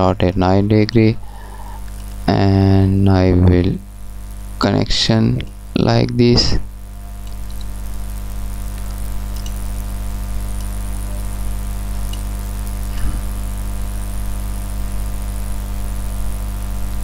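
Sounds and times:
electrical mains hum: 0.0 - 17.0
faint high hiss: 0.8 - 17.0
faint clicks: 7.2 - 7.8, 8.7 - 9.6, 12.0 - 12.8.

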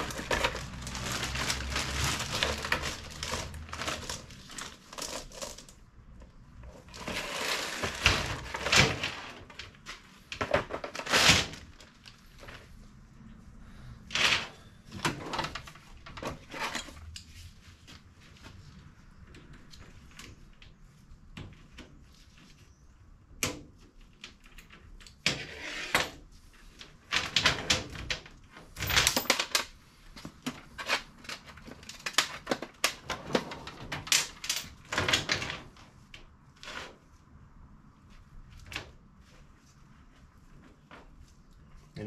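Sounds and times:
metal chain and tools clattering: 28.7 - 29.7, 34.1 - 35.4.

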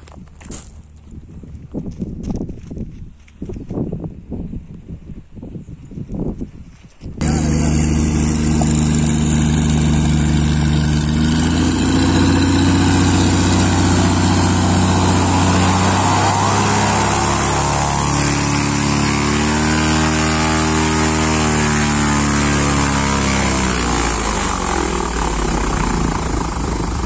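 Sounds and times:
plane propeller engine taxiing: 7.2 - 27.0.

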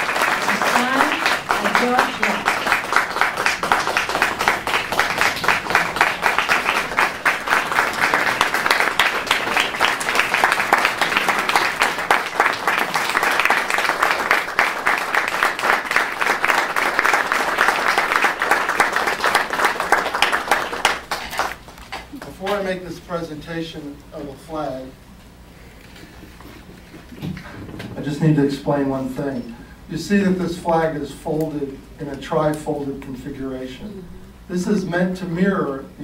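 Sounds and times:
audience applauding: 0.0 - 22.0.

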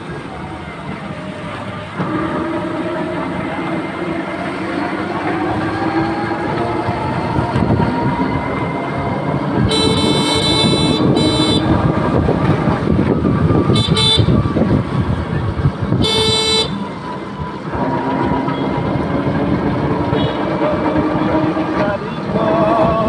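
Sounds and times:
rickshaw rattle and road noise: 0.0 - 23.0
vehicle horn honking: 9.6 - 11.8, 13.7 - 14.4, 16.0 - 16.8, 20.2 - 20.4.

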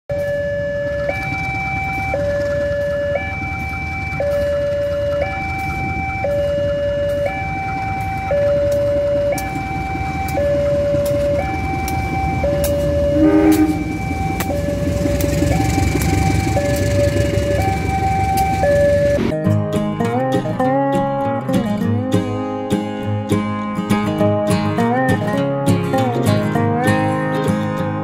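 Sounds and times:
diesel train rumbling past: 0.1 - 19.4
two-tone crossing alarm: 0.1 - 19.4
train horn blast: 12.8 - 16.5.

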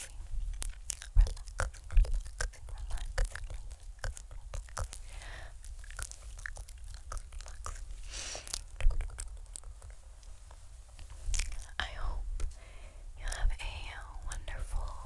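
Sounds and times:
tongue and lip clicks: 0.0 - 12.6, 13.2 - 13.5
breathy hiss: 4.9 - 5.6, 8.0 - 8.6, 11.8 - 13.2.

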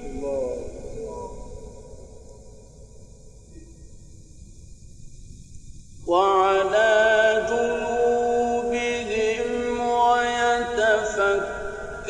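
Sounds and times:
man chanting melodically: 0.0 - 2.0, 6.0 - 12.0.

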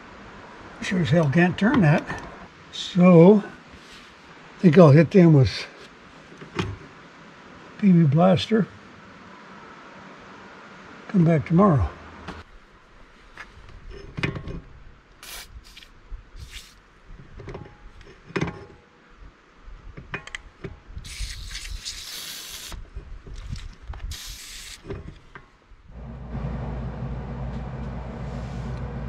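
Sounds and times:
aerosol spray hissing: 15.2 - 16.8, 21.0 - 22.8, 24.1 - 24.8
steady low hum: 25.8 - 29.0.

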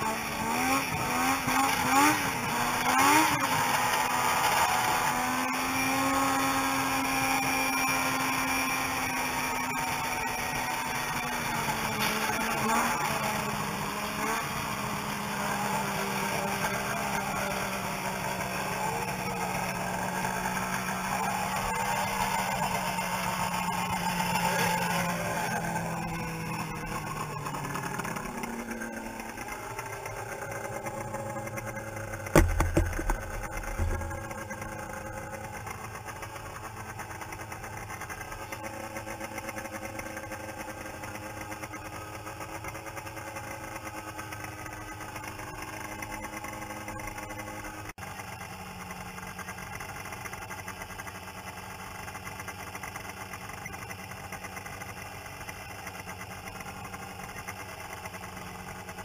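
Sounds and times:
snowmobile engine idling: 0.0 - 59.0
loud dull thumps: 32.3 - 34.4.

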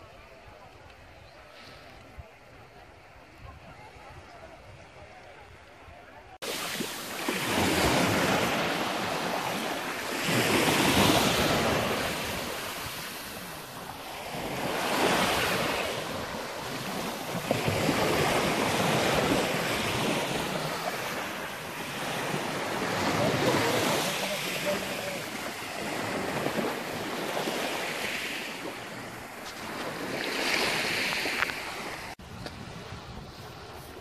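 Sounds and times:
wind on microphone: 25.4 - 34.0.

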